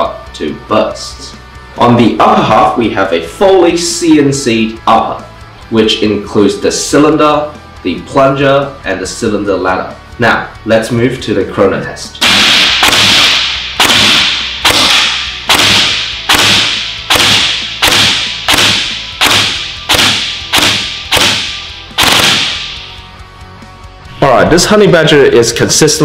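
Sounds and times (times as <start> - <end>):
gel blaster firing shots: 12.2 - 22.8.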